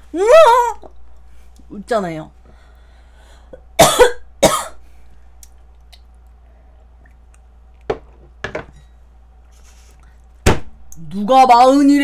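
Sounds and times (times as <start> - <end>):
woman coughing: 3.8 - 4.8.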